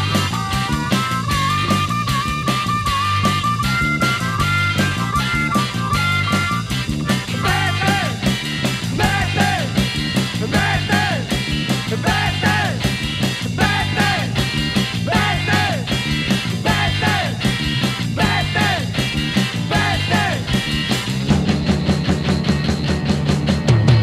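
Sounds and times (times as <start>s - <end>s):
bass: 0.0s - 24.0s
rock band playing: 0.0s - 24.0s
drum beat: 6.9s - 22.0s.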